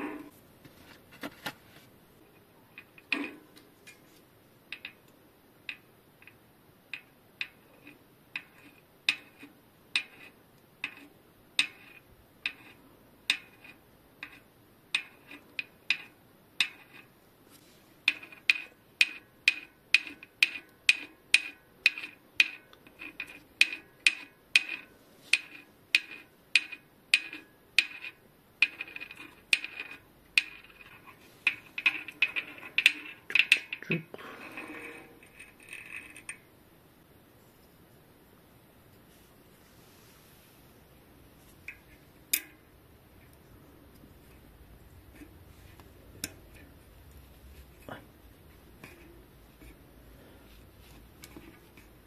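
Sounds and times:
metallic clicks of bicycle parts: 41.7 - 42.6.

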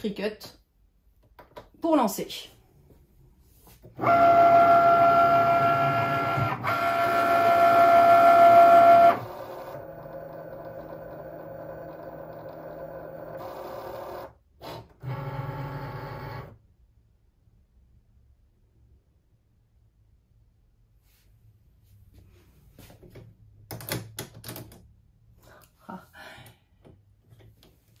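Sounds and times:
cutting machine motors whirring: 4.0 - 16.5.

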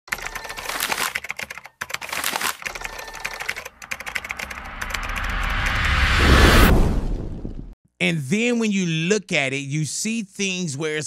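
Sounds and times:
rapid sharp clicks: 0.2 - 6.0.

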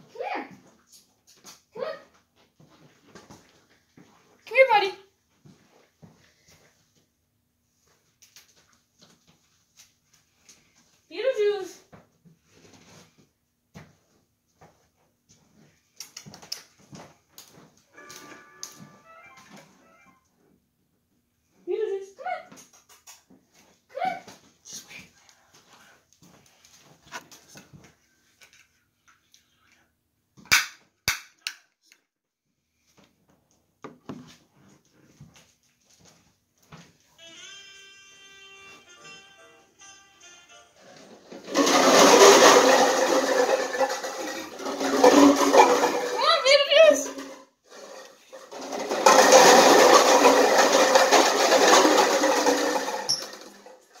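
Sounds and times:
rustling and shuffling: 0.0 - 21.7, 23.2 - 29.3, 32.6 - 37.2
plastic cups clattering on wooden floor: 41.0 - 54.0.

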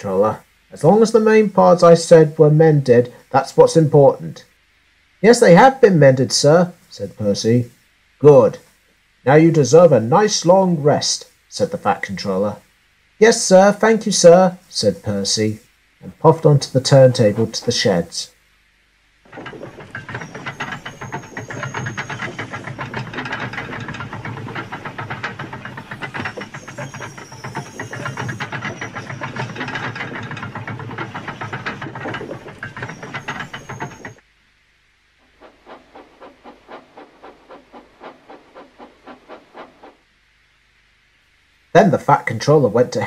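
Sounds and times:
steam locomotive chuffing: 0.0 - 4.3, 13.4 - 18.3, 19.3 - 34.2, 35.2 - 40.1.

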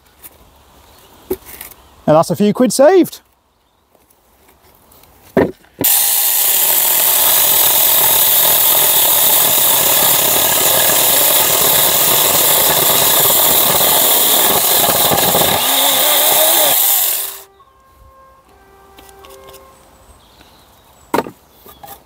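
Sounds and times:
electric chainsaw cutting wood: 5.8 - 17.5.

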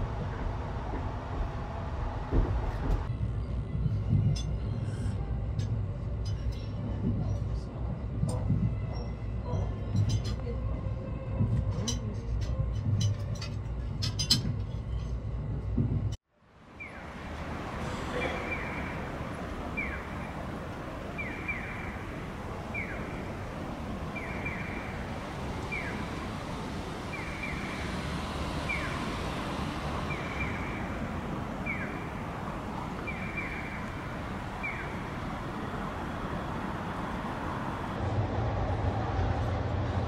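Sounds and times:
city traffic noise: 0.0 - 40.0
crossing signal chirping: 16.8 - 38.0.

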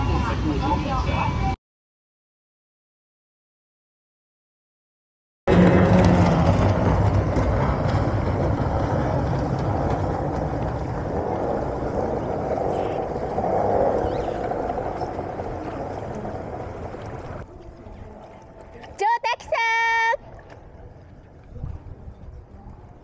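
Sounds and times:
distant outboard engines droning: 5.5 - 23.0.

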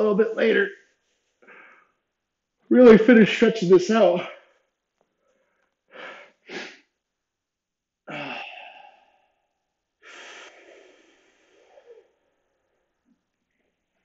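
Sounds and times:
man breathing deeply: 1.4 - 2.0, 5.3 - 6.8, 8.1 - 12.8.

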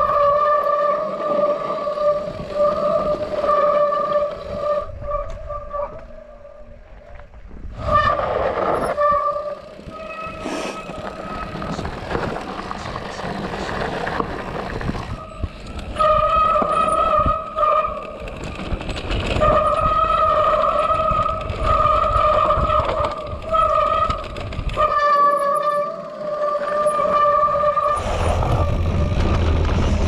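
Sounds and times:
tyres on trail: 0.0 - 30.0
bike disc brakes squealing: 7.8 - 11.8, 15.0 - 18.6, 19.4 - 28.8.

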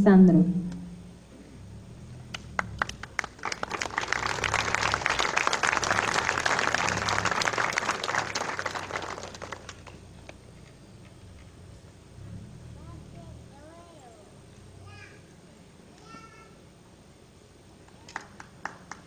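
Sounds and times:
audience applauding: 2.3 - 10.4, 17.8 - 19.0.

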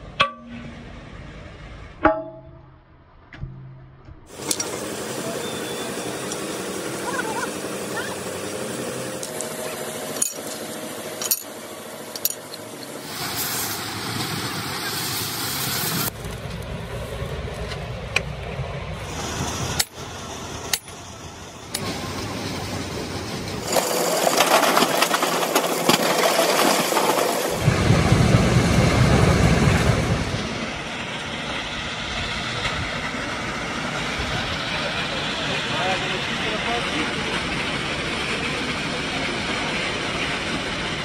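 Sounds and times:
metallic clinks and knocks: 10.1 - 12.6.

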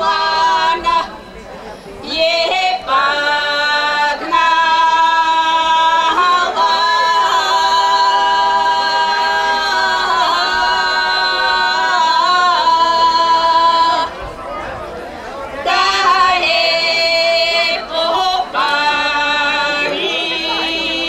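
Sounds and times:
women singing unaccompanied: 0.0 - 14.4, 15.6 - 21.0.

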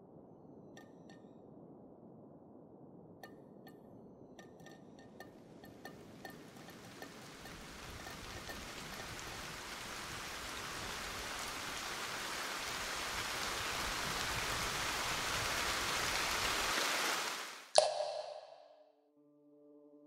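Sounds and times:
rain falling: 5.2 - 17.7.

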